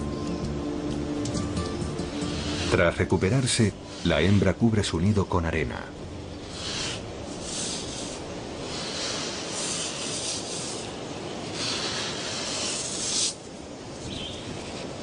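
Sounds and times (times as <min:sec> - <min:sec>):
crocodile scraping sand: 0:02.0 - 0:04.6, 0:06.4 - 0:13.5.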